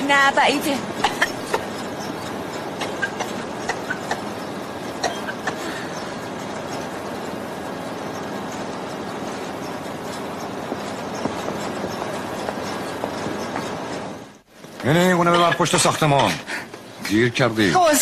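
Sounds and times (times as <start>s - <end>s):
industrial machinery running: 0.0s - 18.0s.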